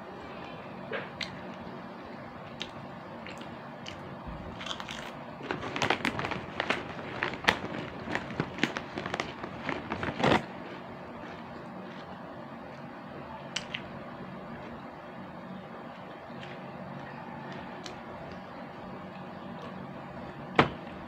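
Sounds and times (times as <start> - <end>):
plastic snack bag crinkling: 3.3 - 12.2.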